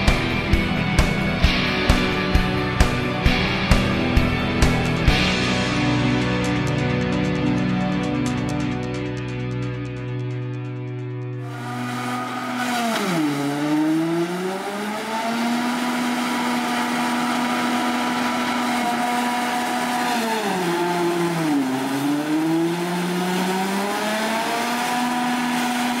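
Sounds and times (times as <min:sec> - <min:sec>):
forage harvester engine and chopper hum: 0:11.4 - 0:26.0.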